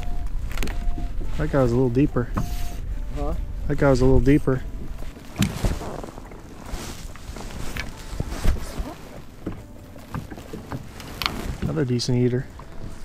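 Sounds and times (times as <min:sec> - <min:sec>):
hands handling fish: 0:04.8 - 0:11.8.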